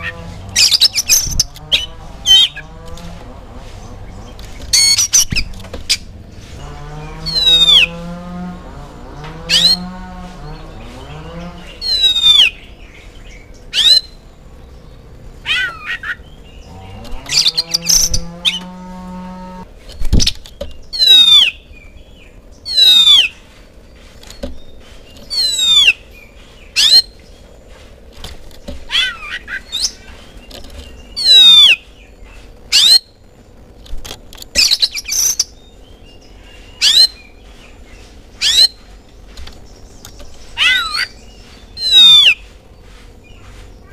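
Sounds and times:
bird singing whistled notes: 0:00.0 - 0:02.7, 0:07.0 - 0:08.1, 0:09.1 - 0:18.7, 0:20.2 - 0:23.4, 0:24.3 - 0:27.4, 0:28.9 - 0:33.2, 0:34.6 - 0:38.9, 0:39.8 - 0:42.5
low animal call: 0:00.0 - 0:12.7, 0:15.3 - 0:19.7.

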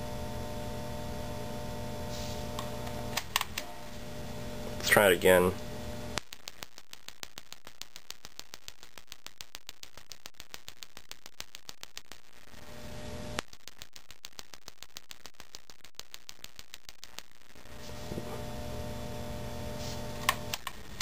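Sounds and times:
low hum: 0:00.0 - 0:04.9, 0:05.5 - 0:06.2.

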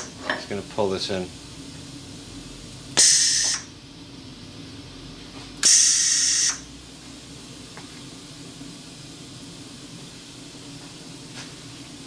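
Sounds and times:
air hissing: 0:02.9 - 0:03.8, 0:05.4 - 0:06.7.

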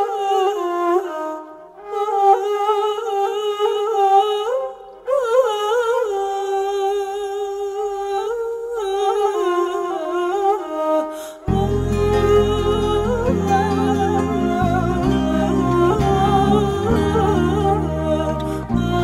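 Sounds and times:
woman humming a melody: 0:11.5 - 0:19.0.

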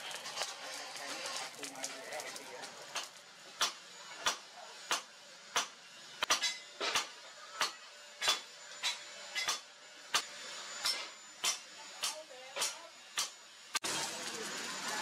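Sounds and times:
hammer striking metal on anvil: 0:02.9 - 0:13.4.

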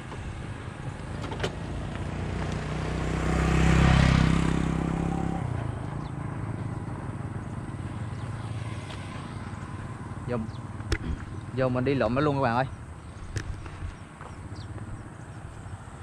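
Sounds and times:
vehicle passing on road: 0:00.0 - 0:16.0.

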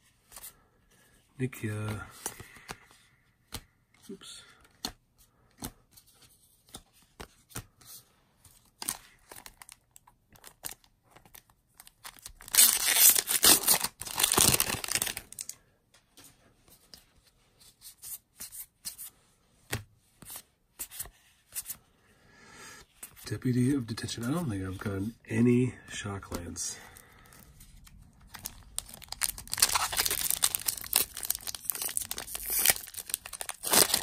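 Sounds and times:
foil wrapper tearing and crinkling: 0:12.0 - 0:15.5, 0:28.3 - 0:34.0.

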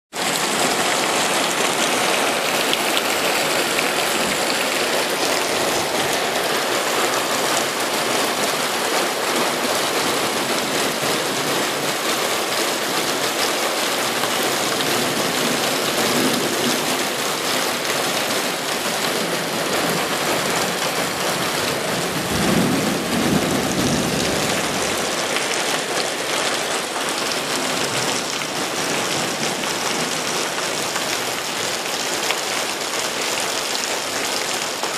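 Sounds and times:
heavy rain falling: 0:00.1 - 0:34.9
low rumble of thunder: 0:21.9 - 0:25.2.

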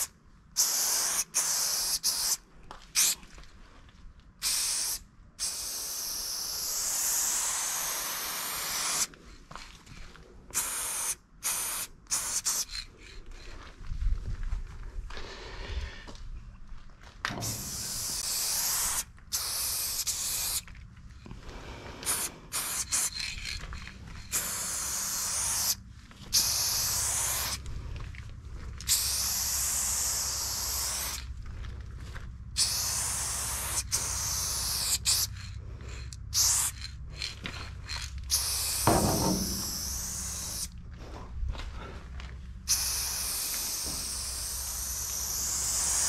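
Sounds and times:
spray paint cans hissing: 0:00.0 - 0:03.2, 0:04.4 - 0:09.1, 0:10.5 - 0:13.2, 0:17.3 - 0:20.7, 0:22.0 - 0:27.6, 0:28.8 - 0:31.3, 0:32.6 - 0:40.8, 0:42.6 - 0:46.0.

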